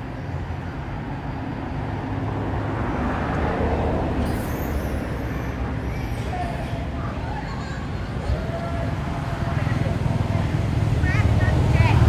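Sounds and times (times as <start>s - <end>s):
road traffic rumble: 0.0s - 12.0s
vehicle passing: 2.0s - 12.0s.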